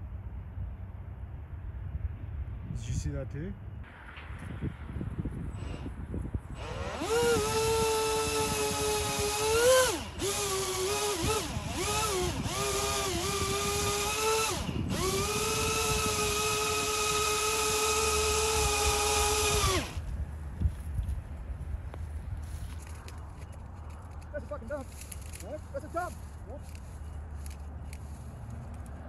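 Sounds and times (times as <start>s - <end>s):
electric motor whining: 6.6s - 20.0s.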